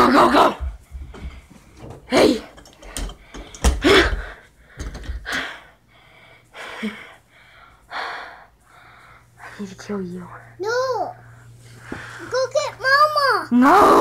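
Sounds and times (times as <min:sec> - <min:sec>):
person gasping and huffing: 0:03.3 - 0:05.8.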